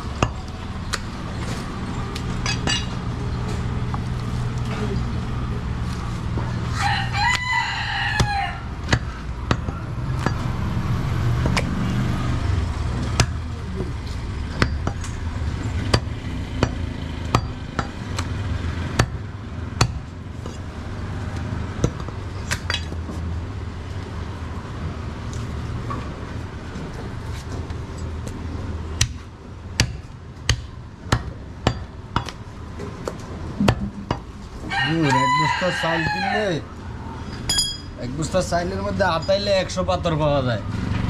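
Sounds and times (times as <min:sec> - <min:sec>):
rooster crowing: 0:06.7 - 0:08.8, 0:34.6 - 0:36.6
cleaver chopping on wooden block: 0:29.8 - 0:32.4
low rumble: 0:33.6 - 0:34.7.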